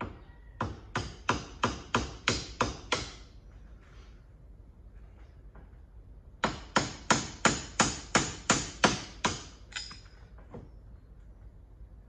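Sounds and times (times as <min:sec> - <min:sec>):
hammer striking metal: 0:06.4 - 0:10.2.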